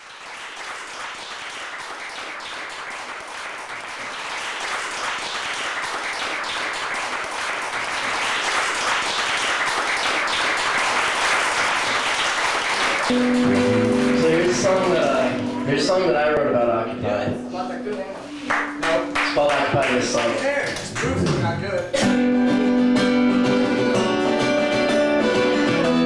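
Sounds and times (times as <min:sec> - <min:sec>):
audience applauding: 0:00.0 - 0:16.0, 0:18.5 - 0:21.3.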